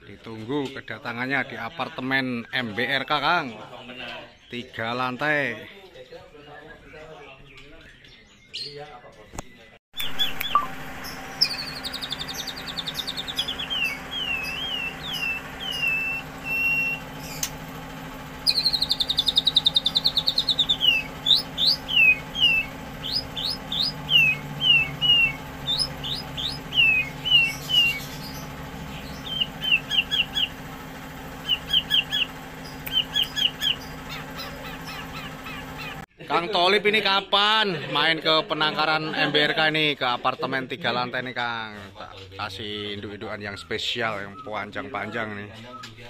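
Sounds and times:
songbird trills and whistles: 10.0s - 17.6s, 18.4s - 30.6s, 31.3s - 36.0s, 43.5s - 46.0s
steady low hum: 10.0s - 36.1s.

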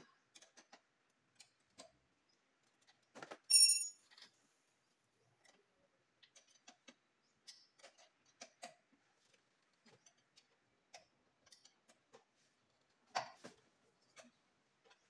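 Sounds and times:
faint clicks and taps of tools: 0.1s - 2.0s, 5.4s - 15.0s.

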